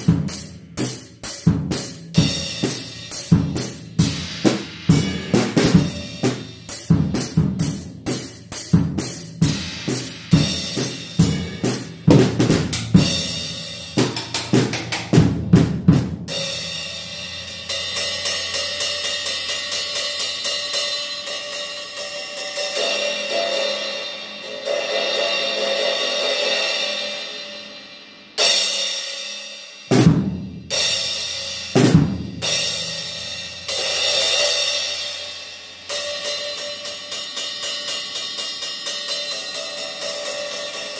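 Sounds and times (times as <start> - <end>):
drum kit beat: 0.0 - 40.9
heavy drum hits with cymbal crashes: 0.0 - 40.9
cymbal wash: 16.3 - 29.9, 30.6 - 40.9.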